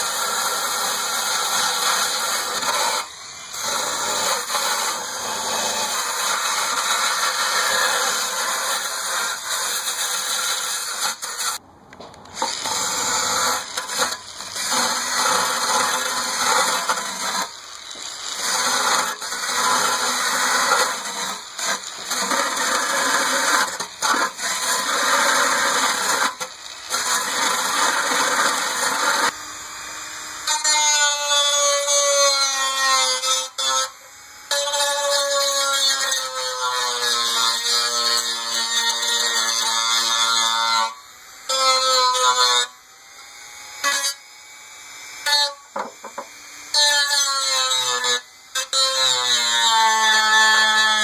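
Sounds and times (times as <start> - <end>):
power drill wire brush on metal: 0.0 - 11.6, 12.3 - 42.8, 45.2 - 51.0.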